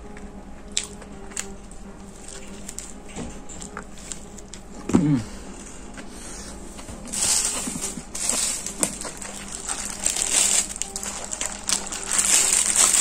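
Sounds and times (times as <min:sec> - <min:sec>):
plastic bag crinkling: 0:01.4 - 0:04.6, 0:07.0 - 0:13.0.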